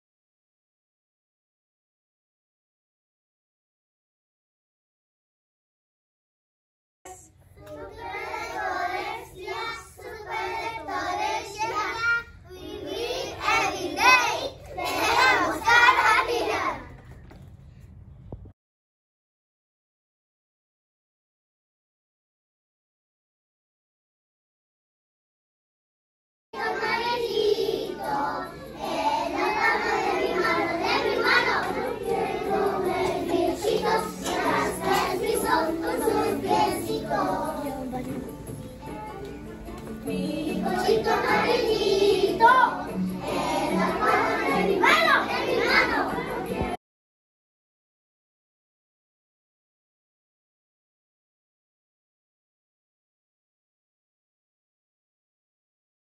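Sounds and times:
children singing in unison: 0:07.6 - 0:16.8, 0:26.6 - 0:37.9, 0:40.1 - 0:46.8
background music: 0:26.6 - 0:46.8.

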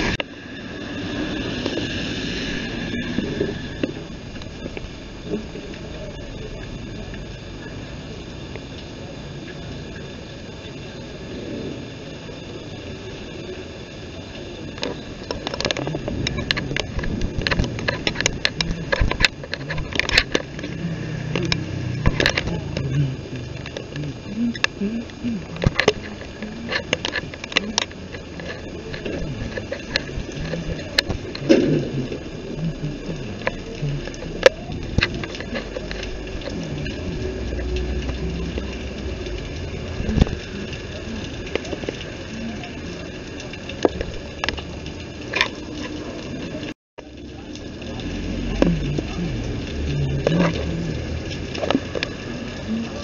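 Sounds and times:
steady hiss: 0:00.0 - 0:53.0
steady low rumble: 0:00.0 - 0:53.0
voice murmuring: 0:18.2 - 0:43.2, 0:48.2 - 0:51.2.

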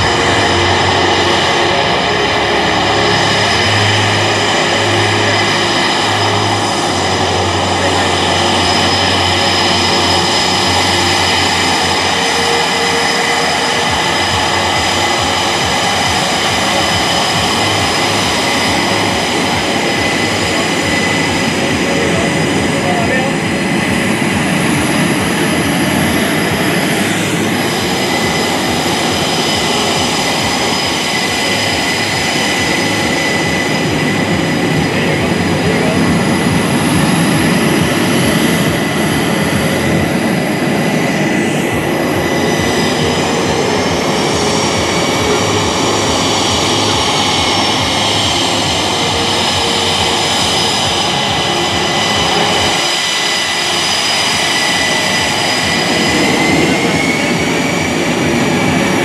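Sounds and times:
jet engines taxiing with whine: 0:00.0 - 0:59.0.

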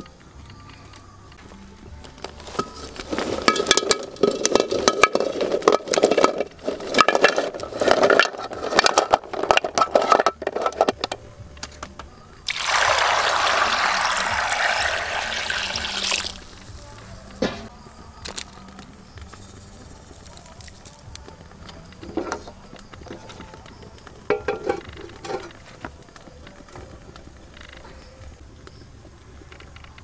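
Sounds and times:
objects clinking in water: 0:02.6 - 0:11.1
water pouring: 0:12.5 - 0:16.6.

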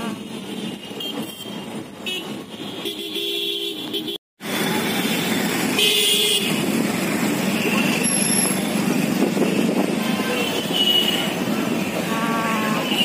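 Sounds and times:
busy street traffic: 0:00.0 - 0:13.0
vehicle horn honking: 0:12.0 - 0:13.0.

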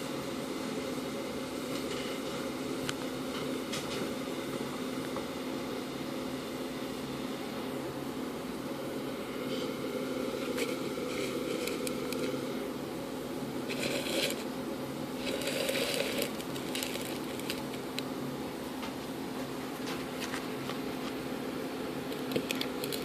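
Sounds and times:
low background hum: 0:00.0 - 0:23.0
plastic container crackling: 0:15.2 - 0:17.9.

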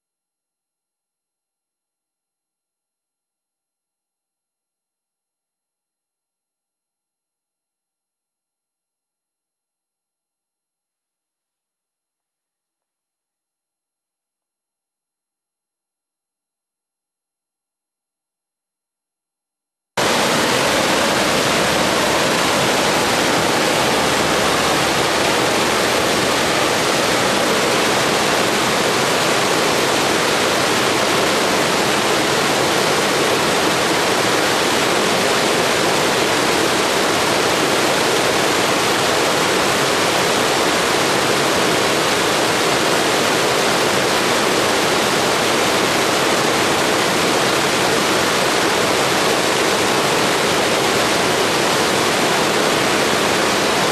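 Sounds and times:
stream cascading over rocks: 0:20.0 - 0:53.9.

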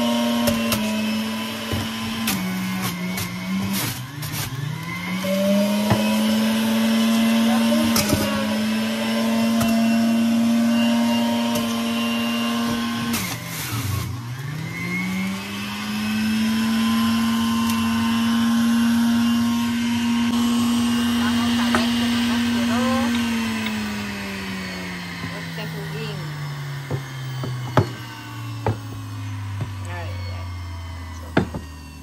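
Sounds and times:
juicer motor whining: 0:00.0 - 0:32.0
knocks: 0:26.9 - 0:28.0.

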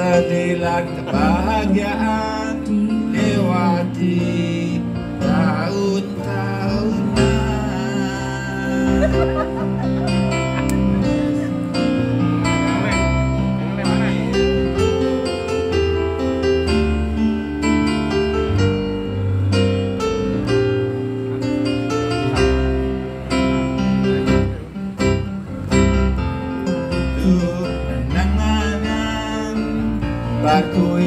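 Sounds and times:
person singing into microphone: 0:00.0 - 0:09.6, 0:27.1 - 0:31.0
keyboard melody: 0:00.0 - 0:31.0
live band pop music: 0:00.0 - 0:31.0.

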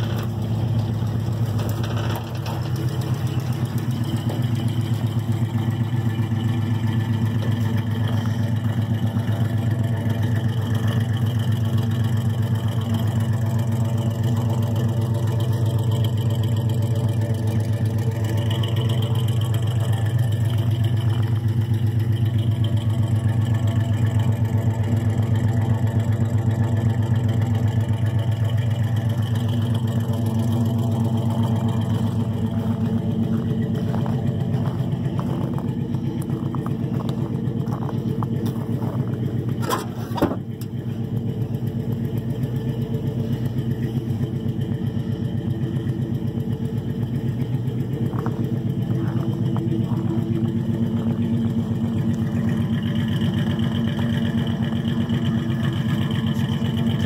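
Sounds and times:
truck engine idling: 0:00.0 - 0:57.0.

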